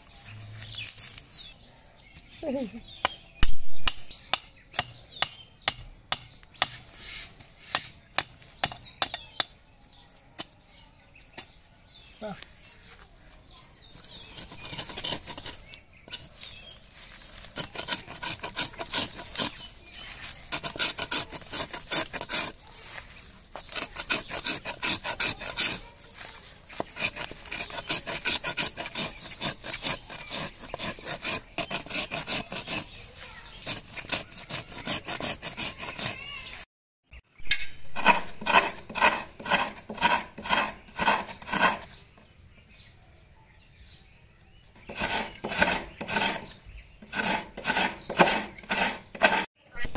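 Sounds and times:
blade scraping coconut husk: 0.2s - 1.5s, 13.9s - 36.7s, 37.4s - 42.0s, 44.8s - 49.5s
coconut flesh grated on scraper: 17.5s - 22.6s, 23.6s - 26.0s, 26.7s - 36.2s, 37.9s - 41.9s, 44.8s - 49.5s.

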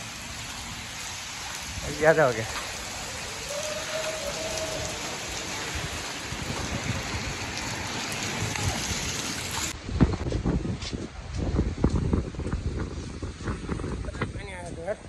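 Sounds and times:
rain on flooded paving: 0.0s - 9.8s.

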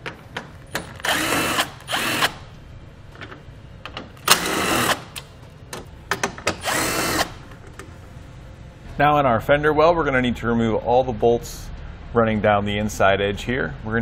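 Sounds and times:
cordless drill motor whine: 1.0s - 2.4s, 6.6s - 7.4s.

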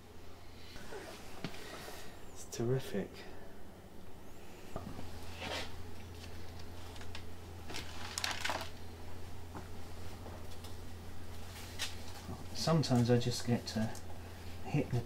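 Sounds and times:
steady low hum: 0.0s - 15.0s
album pages rustling: 5.4s - 8.9s.

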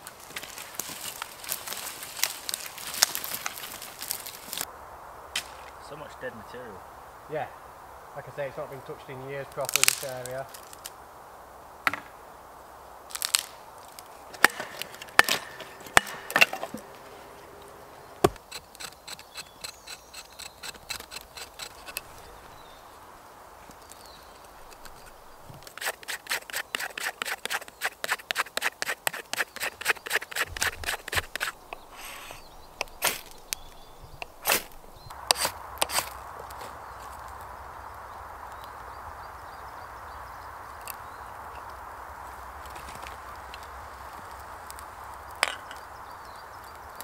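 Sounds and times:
sharp wooden cracks: 0.0s - 4.7s, 9.6s - 10.9s, 13.1s - 22.8s, 23.6s - 36.7s
ferro rod striking knife: 14.4s - 16.8s
knife scraping bark: 14.4s - 22.8s, 23.9s - 36.7s.

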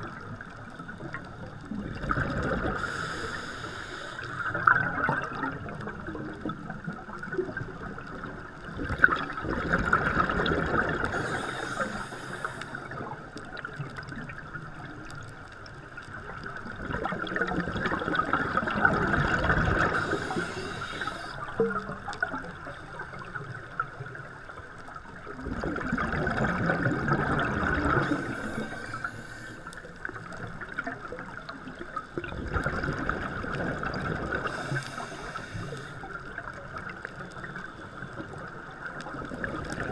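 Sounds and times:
exhaled bubbles underwater: 0.0s - 39.9s
regulator hiss: 2.8s - 4.5s, 11.1s - 13.1s, 19.8s - 21.6s, 27.9s - 30.0s, 34.4s - 36.2s.

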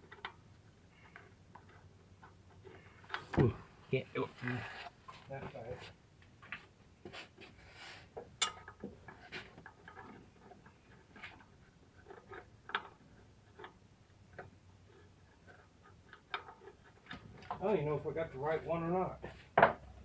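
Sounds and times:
tools clicking and tapping on metal: 8.2s - 13.8s.

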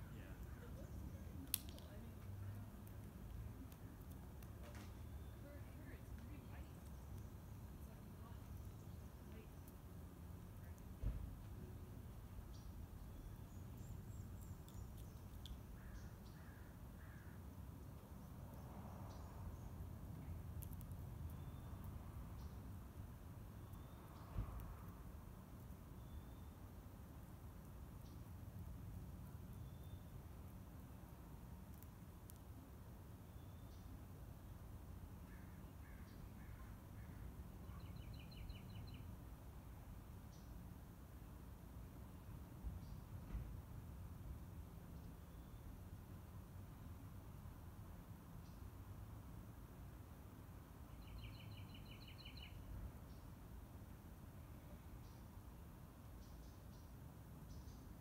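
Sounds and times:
low outdoor rumble: 0.0s - 58.0s
faint clicks: 1.4s - 4.9s
crow cawing faintly: 15.7s - 17.5s, 35.2s - 37.4s.

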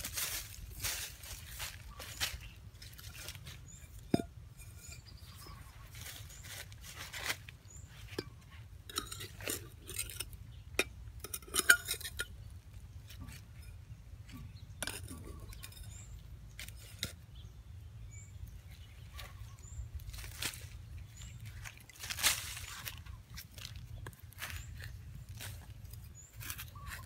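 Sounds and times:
dry leaves rustling: 0.0s - 4.1s, 5.0s - 8.6s, 18.6s - 27.0s
ceramic bowl clinking on metal: 8.9s - 12.5s, 14.4s - 17.2s.

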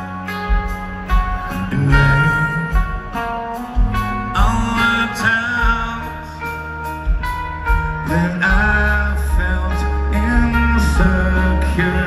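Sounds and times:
electric guitar: 0.0s - 12.0s
male lead vocal: 1.5s - 6.7s, 7.7s - 12.0s.

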